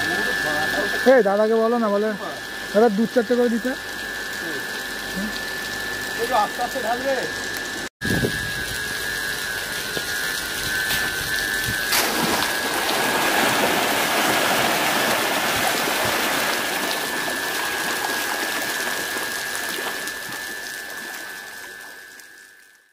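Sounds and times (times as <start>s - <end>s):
steady high whine: 0.0s - 22.9s
fish thrashing and water splashing: 8.6s - 22.6s.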